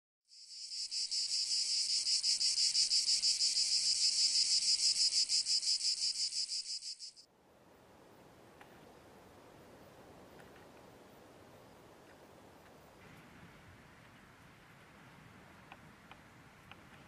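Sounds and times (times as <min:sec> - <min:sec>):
cricket trilling: 0:00.3 - 0:07.3.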